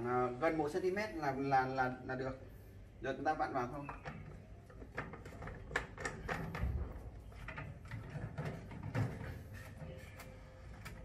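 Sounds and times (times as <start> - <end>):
plastic parts clicking and knocking: 3.8 - 11.0.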